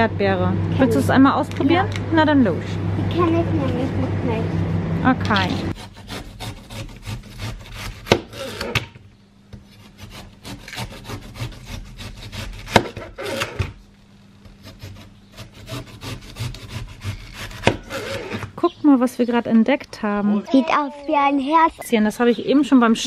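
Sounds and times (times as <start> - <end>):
knife cutting through watermelon: 9.8 - 13.7.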